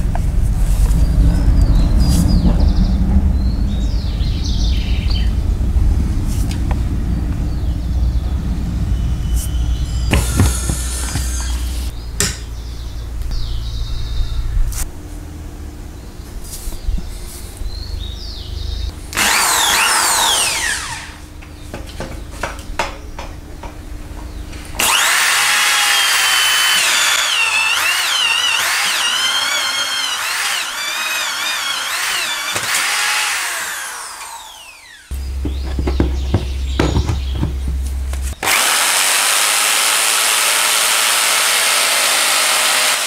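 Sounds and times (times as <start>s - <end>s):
power tool motor whining: 9.7s - 11.9s, 19.1s - 21.2s, 24.8s - 43.0s.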